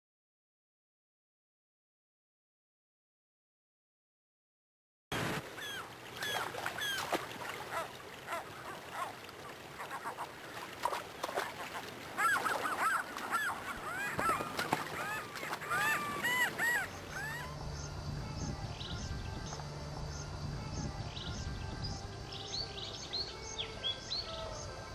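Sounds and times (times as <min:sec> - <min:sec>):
gulls calling: 0:05.1 - 0:19.6.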